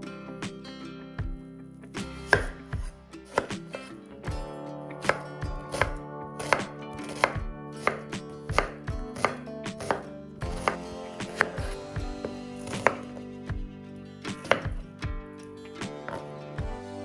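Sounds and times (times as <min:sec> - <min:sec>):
knife slicing onion on wooden board: 0:02.0 - 0:03.7, 0:05.0 - 0:11.8, 0:12.6 - 0:13.3, 0:14.3 - 0:14.8.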